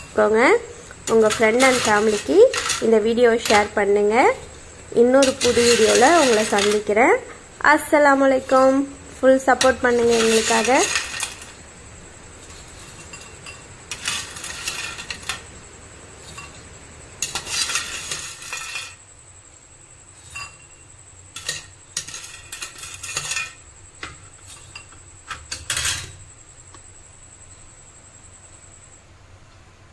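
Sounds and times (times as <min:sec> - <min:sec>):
fried snacks rattling: 0:05.2 - 0:06.9.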